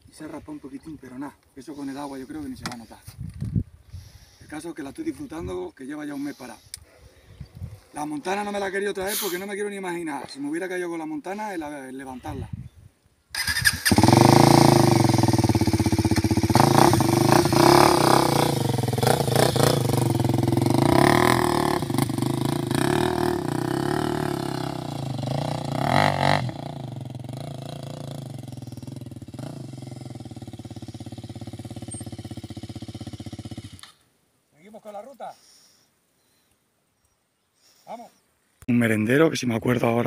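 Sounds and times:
motorcycle engine revving: 13.4s - 33.9s.

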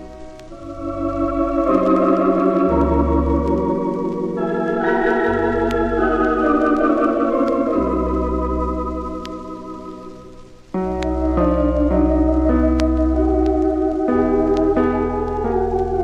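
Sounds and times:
organ chords with vibrato: 0.0s - 16.0s.

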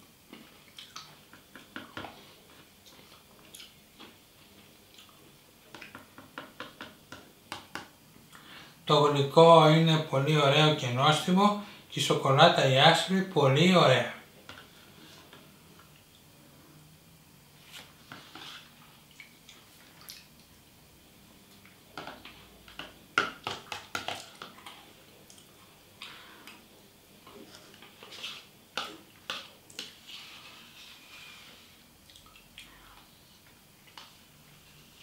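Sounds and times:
wet chewing and lip sounds: 0.3s - 1.2s, 2.5s - 6.0s, 32.0s - 32.8s.

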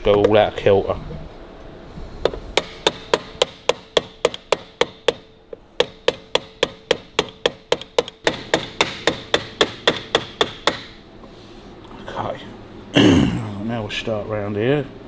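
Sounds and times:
small hammer tapping metal: 5.8s - 10.9s.

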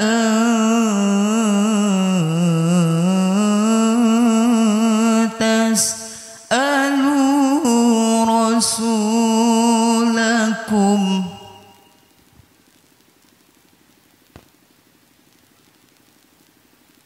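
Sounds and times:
man chanting recitation: 0.0s - 11.8s.

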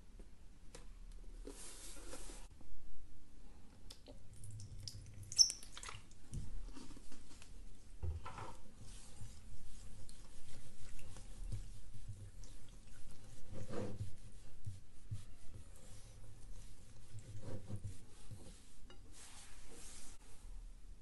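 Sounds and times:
glue stirring and scraping: 8.7s - 20.2s.

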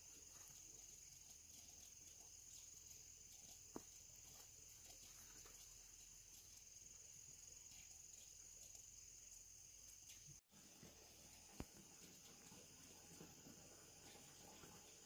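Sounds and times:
insect chirring: 0.0s - 10.4s.

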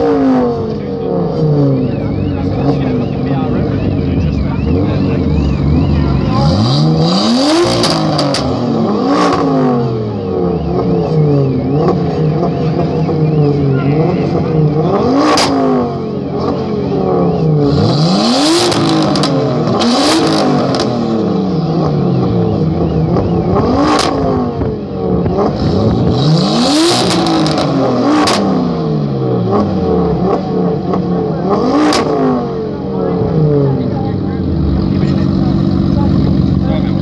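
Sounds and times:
car engines revving hard: 0.0s - 37.0s.

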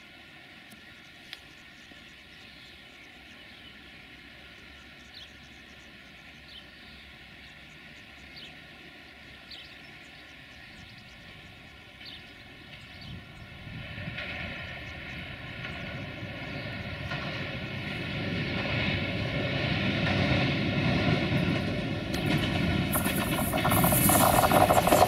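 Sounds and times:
locomotive diesel engine drone: 17.6s - 25.0s
train rushing hiss: 17.9s - 25.0s.

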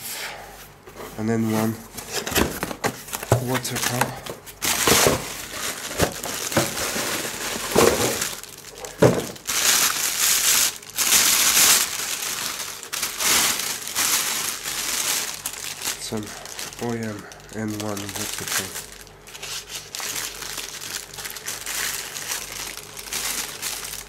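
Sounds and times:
plastic bag crinkling: 1.8s - 24.0s.

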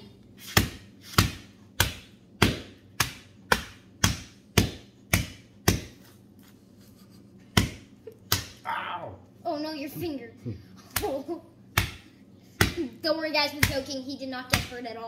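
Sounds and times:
hammer pounding charcoal on concrete: 0.4s - 6.0s.

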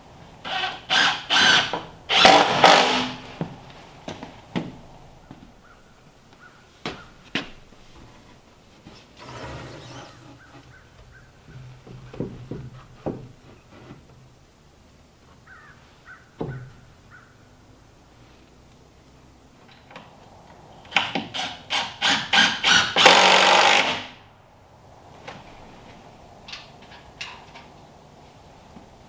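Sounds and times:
faint crow caws: 5.2s - 7.2s, 15.4s - 17.5s
wooden boards knocking: 11.4s - 13.4s.

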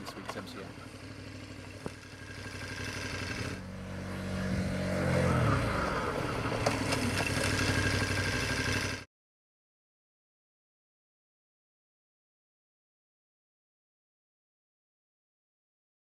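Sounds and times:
motorcycle engine running: 0.0s - 9.1s.

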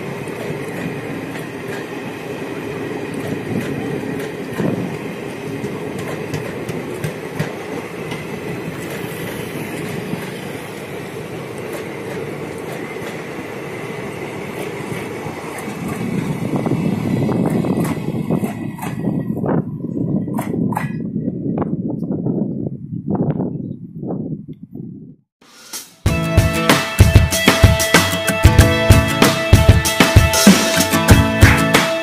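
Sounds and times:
wheels clicking over rail joints: 0.0s - 21.2s
train coaches rolling rumble: 0.0s - 23.0s.

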